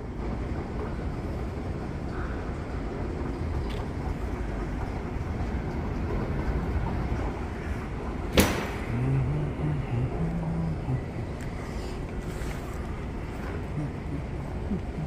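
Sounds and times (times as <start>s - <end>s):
station hall rumble: 0.0s - 15.0s
sharp knock: 8.4s - 8.8s.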